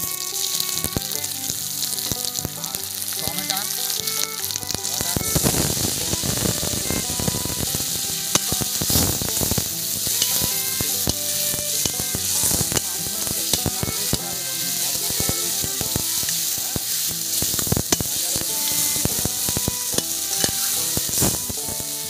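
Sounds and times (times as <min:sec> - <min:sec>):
food sizzling in hot oil: 0:00.0 - 0:22.0
spoon clicking on pan: 0:07.2 - 0:21.8.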